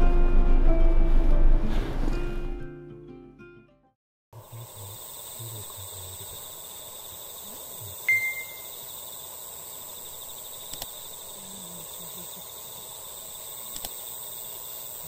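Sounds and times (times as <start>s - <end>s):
crickets chirping: 4.4s - 15.0s
bright chime: 8.1s - 8.7s.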